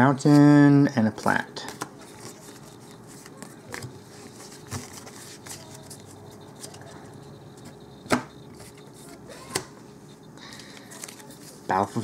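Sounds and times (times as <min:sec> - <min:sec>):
cards tapping on table: 0:08.0 - 0:08.3.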